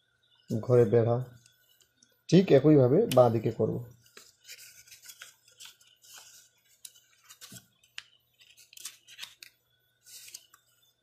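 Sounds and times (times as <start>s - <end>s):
paper rustling: 4.0s - 11.0s
crisp paper clicks: 4.1s - 10.7s.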